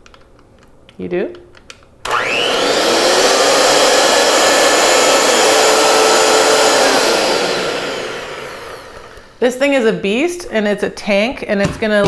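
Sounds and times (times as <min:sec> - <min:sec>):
hand mixer motor whine: 0:02.1 - 0:09.4.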